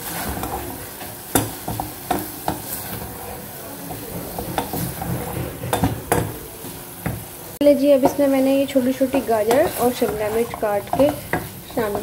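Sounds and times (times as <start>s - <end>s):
wooden spoon scraping pot: 0.0s - 6.8s, 8.0s - 12.0s
frying sizzle: 0.0s - 12.0s.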